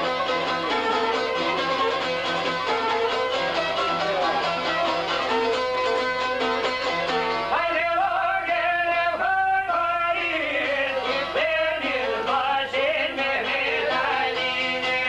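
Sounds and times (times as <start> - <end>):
violin: 0.0 - 7.7
plucked long-necked lutes: 0.0 - 9.2.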